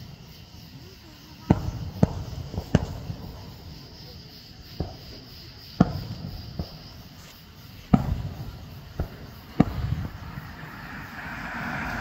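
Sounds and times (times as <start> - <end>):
low rumble: 9.6 - 12.0.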